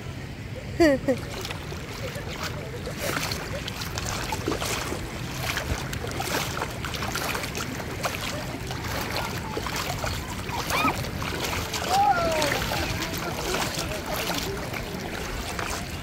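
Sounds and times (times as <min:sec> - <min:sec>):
sea water lapping and sloshing: 0:00.0 - 0:16.0
small splashes: 0:00.8 - 0:16.0.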